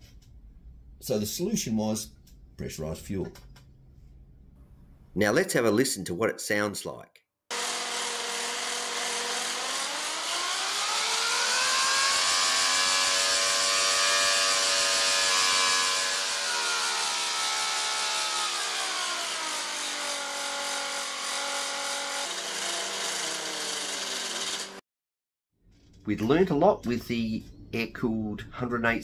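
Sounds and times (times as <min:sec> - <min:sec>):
model aircraft engine revving: 0:07.5 - 0:20.8.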